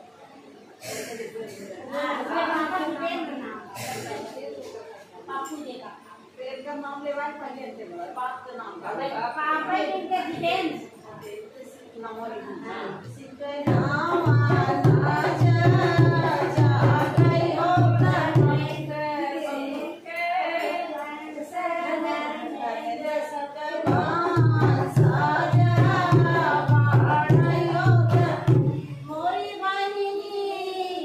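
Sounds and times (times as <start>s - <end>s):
women singing folk song: 13.1s - 31.0s
hand drum beat: 13.7s - 18.8s, 23.9s - 28.9s.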